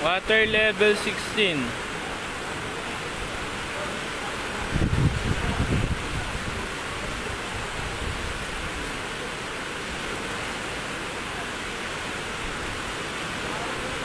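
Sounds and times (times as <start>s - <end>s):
low rumbling wind gusts: 1.8s - 10.7s
wind buffeting microphone: 4.6s - 8.8s.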